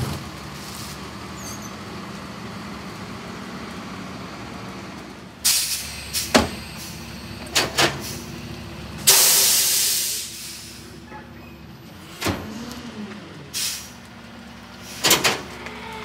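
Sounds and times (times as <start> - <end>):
trash carts banging on hopper: 6.0 - 8.2, 14.8 - 16.0
air hiss: 9.1 - 10.9.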